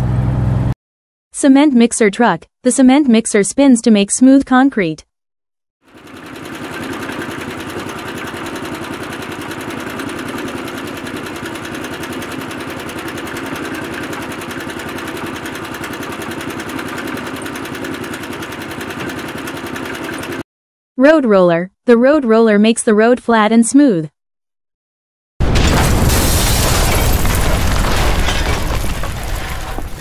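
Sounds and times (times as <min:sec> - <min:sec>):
diesel truck engine running: 0:00.0 - 0:00.7, 0:05.9 - 0:20.4.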